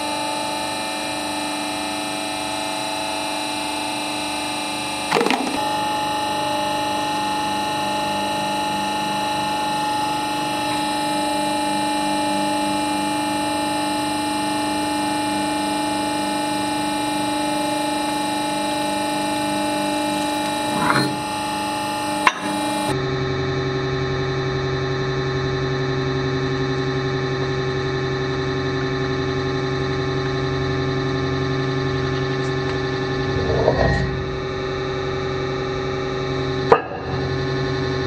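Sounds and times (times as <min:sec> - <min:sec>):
hydraulic pump humming: 0:05.0 - 0:10.8, 0:18.8 - 0:23.0.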